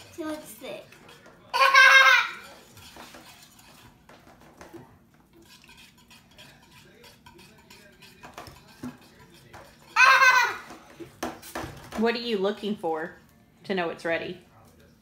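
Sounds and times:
metal spoon scraping bowl: 0:00.0 - 0:01.5, 0:02.2 - 0:04.4, 0:05.3 - 0:11.9.

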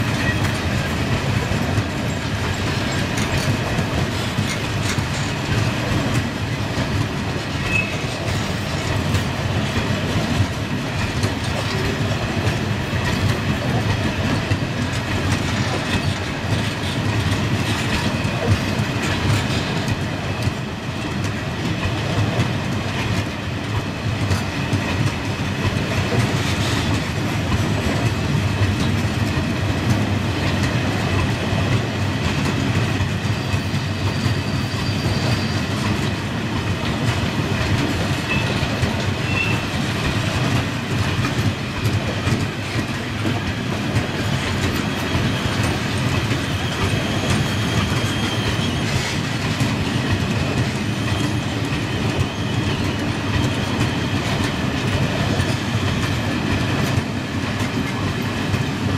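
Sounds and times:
freight train wheels rumbling: 0:00.0 - 0:58.9
wheels clacking over rail joints: 0:00.0 - 0:58.9
faint wheel squeals: 0:33.5 - 0:35.7.

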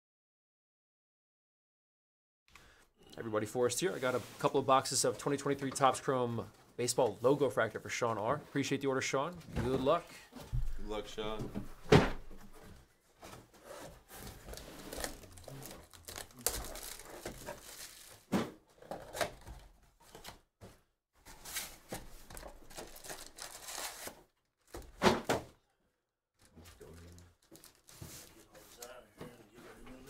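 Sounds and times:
card packs crinkling and tearing: 0:14.3 - 0:18.3, 0:22.3 - 0:24.9, 0:26.4 - 0:28.2.

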